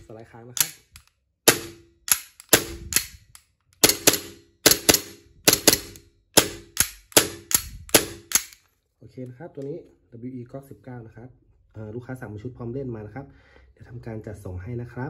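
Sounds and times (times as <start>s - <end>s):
pistol slide metallic clacks: 0.6s - 8.7s.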